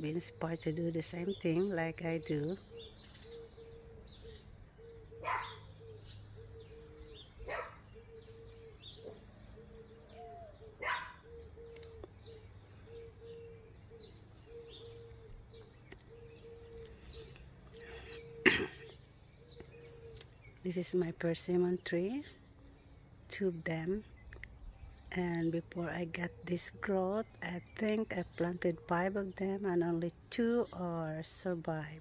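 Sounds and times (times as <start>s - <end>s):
small birds chirping: 0.0s - 32.0s
dog barking: 5.2s - 5.6s, 7.5s - 7.8s, 10.8s - 11.2s.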